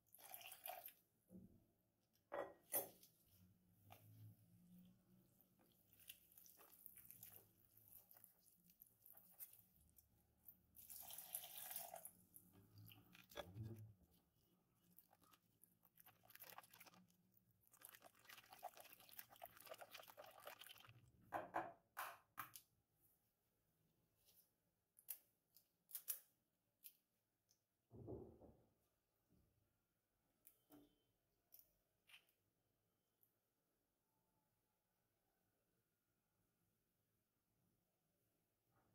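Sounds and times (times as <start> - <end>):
whisk squelching in batter: 14.8 - 17.1, 17.7 - 20.9.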